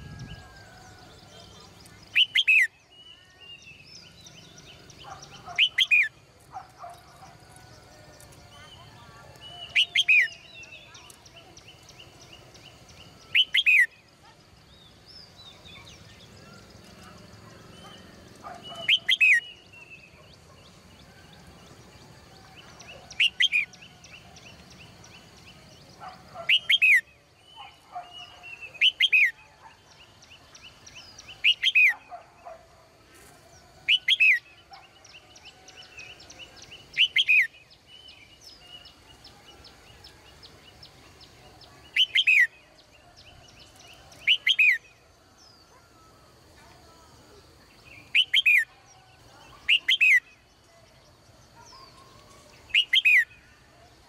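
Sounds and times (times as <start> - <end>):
bulbul chirpy calls: 0.2 - 7.5, 8.4 - 20.9, 22.6 - 32.6, 33.9 - 39.0, 40.8 - 45.0, 46.6 - 50.6, 51.5 - 53.6.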